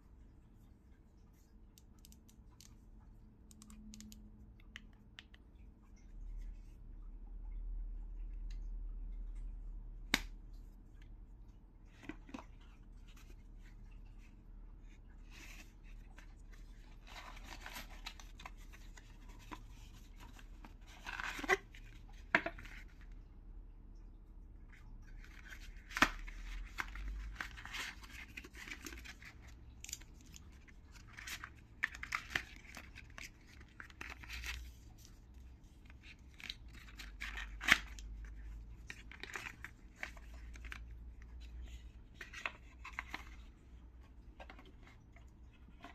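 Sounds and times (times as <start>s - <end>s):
cardboard and paper rustling: 11.9s - 23.0s, 25.2s - 45.9s.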